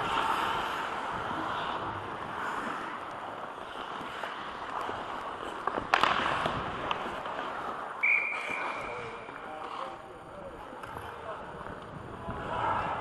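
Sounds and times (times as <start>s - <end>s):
skates scraping on ice: 0.0s - 13.0s.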